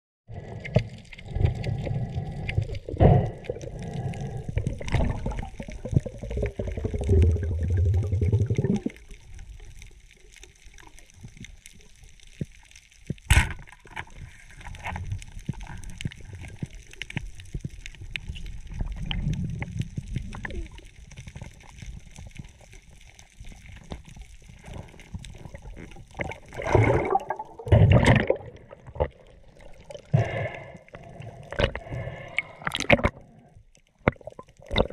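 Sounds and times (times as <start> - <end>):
faint fine crackling: 0.3 - 27.8
underwater rumbling and sloshing: 0.3 - 34.9.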